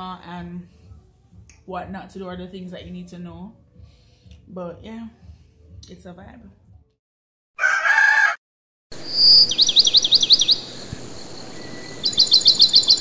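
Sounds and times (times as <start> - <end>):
songbird chirping: 9.0 - 13.0.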